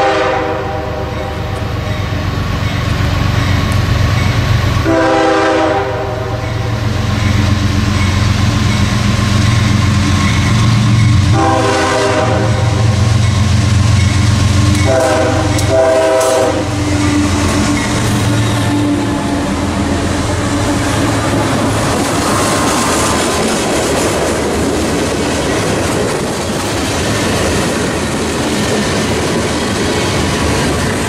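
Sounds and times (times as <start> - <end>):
locomotive air horn blasts: 0.0 - 1.5, 4.8 - 6.5, 11.2 - 13.0, 14.5 - 21.6
diesel locomotive engines rumbling: 0.0 - 31.0.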